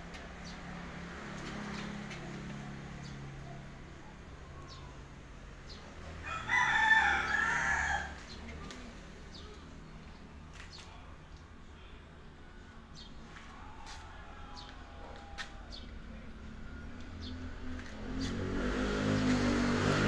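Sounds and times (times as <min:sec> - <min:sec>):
rooster crowing: 0:06.2 - 0:08.2.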